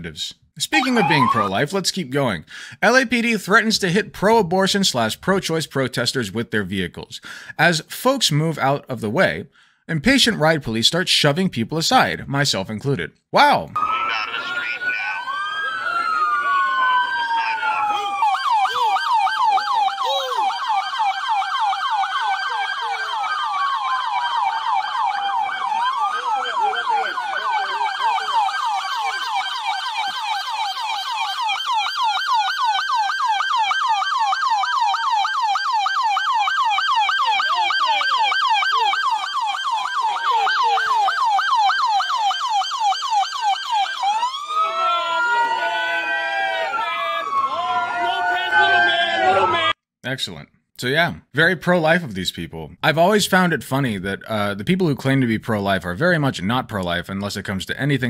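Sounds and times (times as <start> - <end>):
police siren yelping and wailing: 0.7 - 1.8, 13.8 - 49.8.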